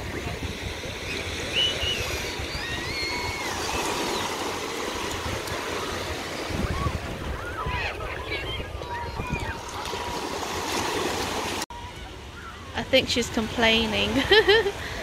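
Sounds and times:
small waves breaking on shore: 0.0 - 15.0
wind rumbling on microphone: 4.8 - 11.6.

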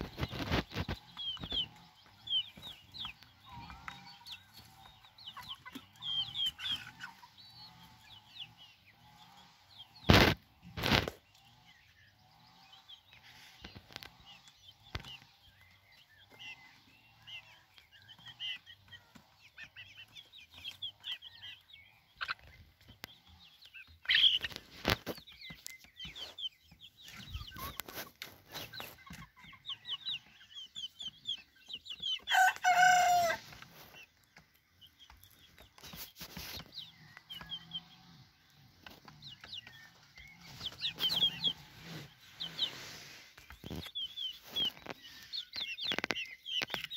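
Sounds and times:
chicks peeping: 0.0 - 46.9
young cockerel trying to crow: 32.3 - 33.4.

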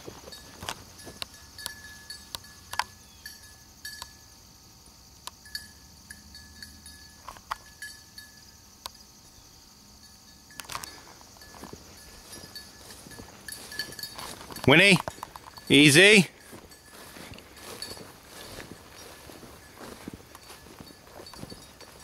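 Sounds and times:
footsteps through dry grass: 0.0 - 2.1, 10.9 - 22.0
rustles and clicks: 0.0 - 3.0, 10.5 - 22.0
faint metallic jingles: 0.0 - 22.0.

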